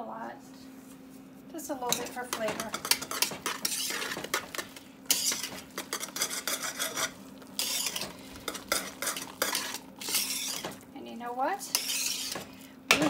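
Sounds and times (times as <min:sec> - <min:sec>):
whisk scraping metal pot: 0:01.9 - 0:10.9, 0:11.6 - 0:13.0
whisk swishing through potatoes: 0:02.0 - 0:10.9, 0:11.6 - 0:13.0.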